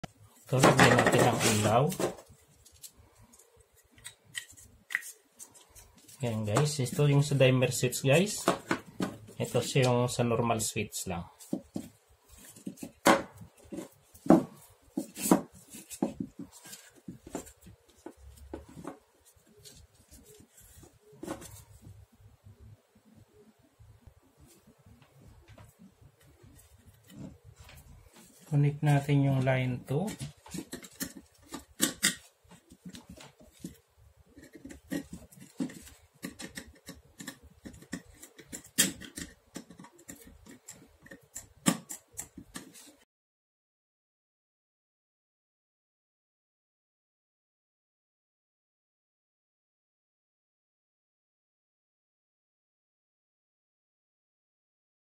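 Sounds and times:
clicks and rattles of wires: 0:30.0 - 0:43.0.

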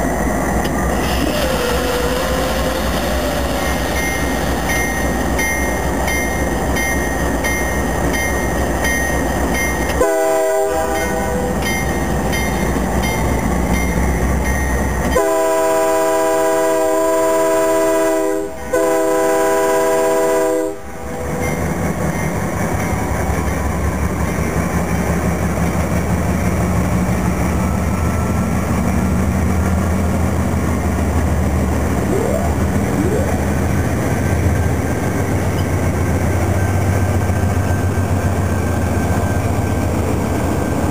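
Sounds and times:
locomotive horn blasts: 0:10.0 - 0:11.4, 0:15.1 - 0:20.9.

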